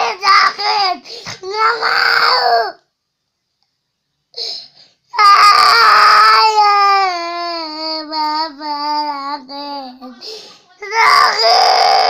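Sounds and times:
young boy crying: 5.2s - 12.0s.

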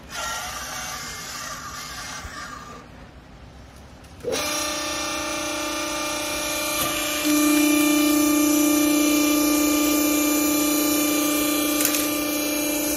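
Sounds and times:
hydraulic motor humming: 4.2s - 12.9s.

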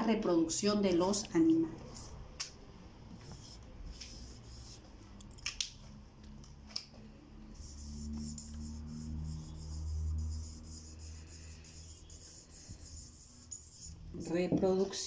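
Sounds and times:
marker scratching on whiteboard: 1.8s - 2.2s, 3.1s - 5.0s, 7.4s - 14.3s.

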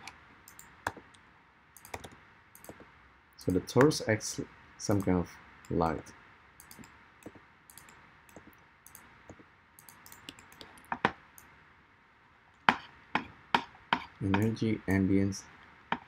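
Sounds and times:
computer mouse clicks: 0.0s - 1.2s, 1.8s - 2.9s, 6.6s - 11.5s
keyboard clicks: 0.0s - 1.2s, 1.8s - 2.9s, 4.9s - 5.8s, 6.6s - 11.5s.

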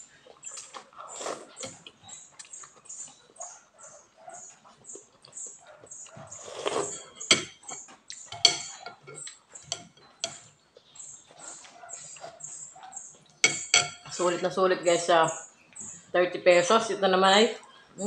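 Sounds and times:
wet chewing and lip-smacking: 0.0s - 6.8s, 7.8s - 8.3s
slurping noodle soup: 0.9s - 1.9s, 6.3s - 7.2s
metal cutlery clinking on glass bowl: 6.8s - 10.5s, 13.4s - 14.5s.

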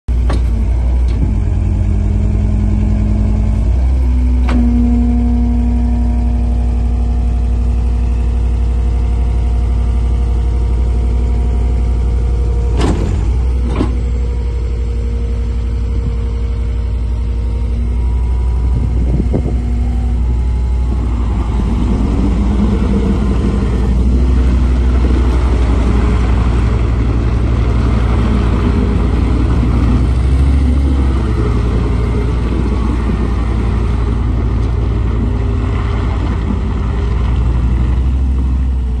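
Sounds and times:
diesel engine running: 0.1s - 39.0s
rattling of rubber tracks: 18.0s - 39.0s.

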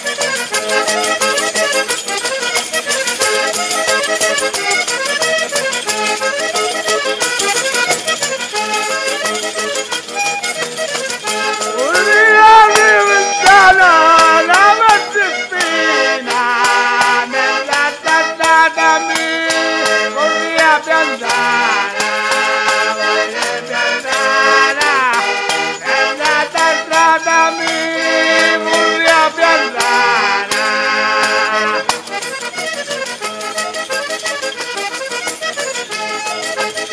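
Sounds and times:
button accordion folk tune: 0.0s - 36.9s
man singing: 11.6s - 21.8s, 23.9s - 30.5s.

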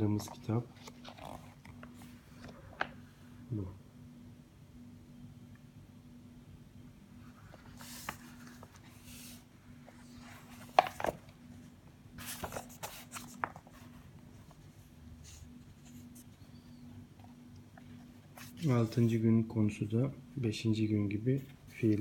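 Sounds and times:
book pages rustling: 0.0s - 3.1s, 7.2s - 19.2s, 21.5s - 22.0s.

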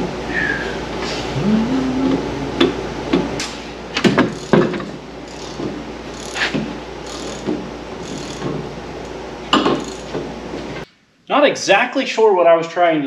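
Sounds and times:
knocks and clanks of car repair: 2.6s - 8.7s, 9.5s - 10.4s.

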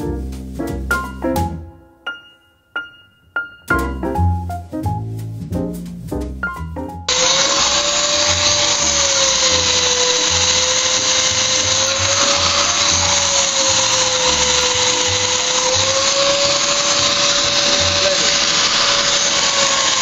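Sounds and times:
electric polisher motor whine: 7.1s - 20.0s.

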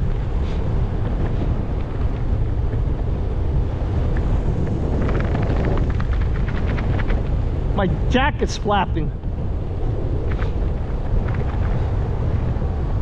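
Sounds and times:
jacket flapping in wind: 0.0s - 13.0s
wind buffeting microphone: 0.0s - 13.0s.

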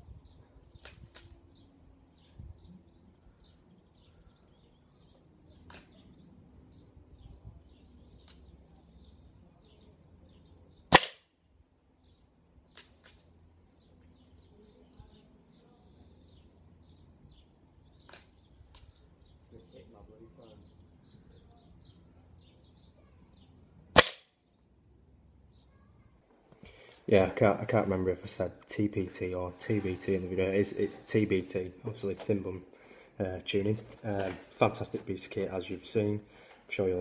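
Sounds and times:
small birds chirping: 0.0s - 37.0s
air rifle shot crack: 10.9s - 11.3s, 23.9s - 24.3s.

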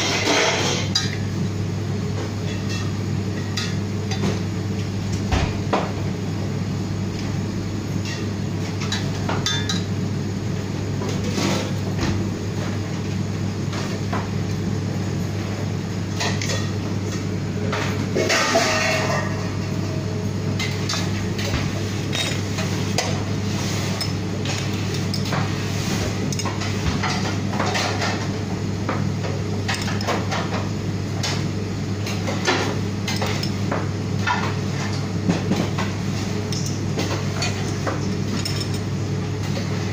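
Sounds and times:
steady low hum: 0.0s - 39.9s
metal utensils and dishes clinking: 18.2s - 19.4s, 37.4s - 38.8s.

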